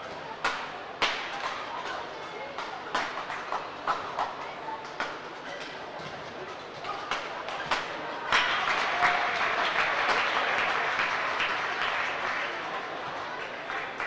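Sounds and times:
crowd applauding: 8.2 - 14.0.

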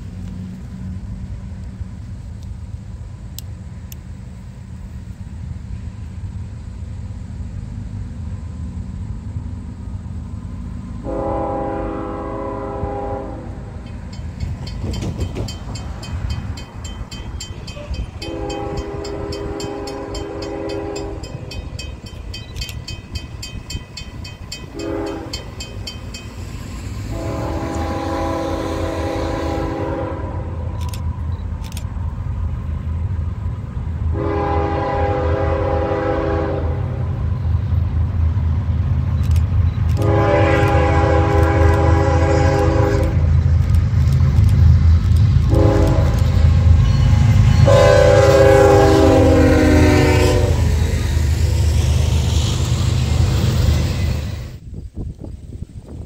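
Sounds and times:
train rumbling: 0.0 - 56.0
locomotive horn blasts: 11.0 - 13.8, 17.6 - 21.8, 24.6 - 25.7, 27.1 - 30.9, 34.1 - 37.2, 40.0 - 43.3, 45.5 - 50.9.

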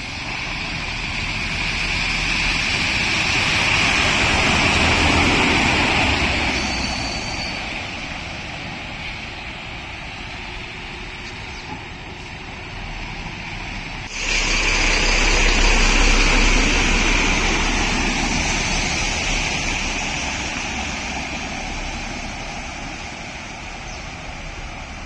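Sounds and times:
lorry engine rumble: 0.0 - 25.0
tyres splashing through water: 14.1 - 25.0.

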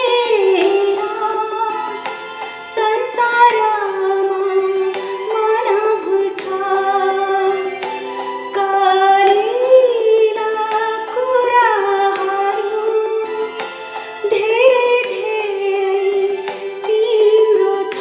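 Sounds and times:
instrumental backing: 0.0 - 18.0
woman singing: 0.0 - 18.0.

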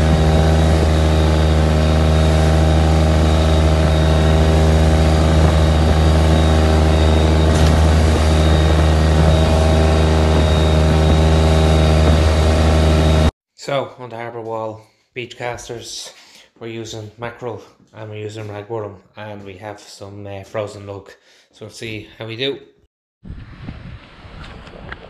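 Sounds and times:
boat engine running: 0.0 - 13.3.

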